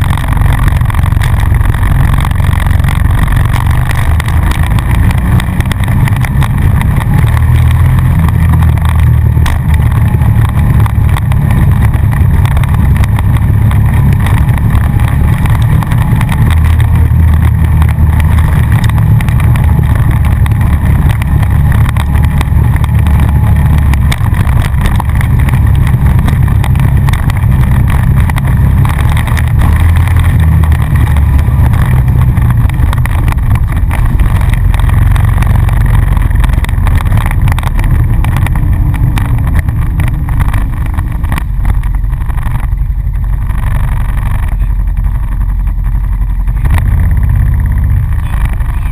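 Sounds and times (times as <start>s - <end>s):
quad bike engine running: 0.0s - 48.9s.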